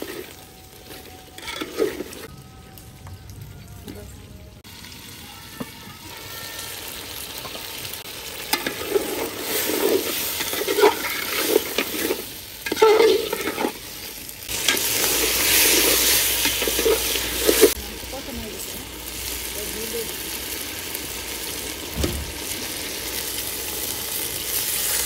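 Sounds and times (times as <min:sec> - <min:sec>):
metal spatula scraping a pot: 0:00.0 - 0:02.3, 0:08.4 - 0:17.8
meat sizzling: 0:00.0 - 0:25.0.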